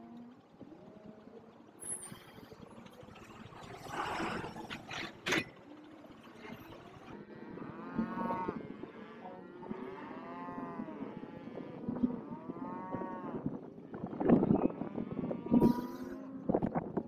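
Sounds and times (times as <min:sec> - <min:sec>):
cattle mooing: 0:07.2 - 0:13.6.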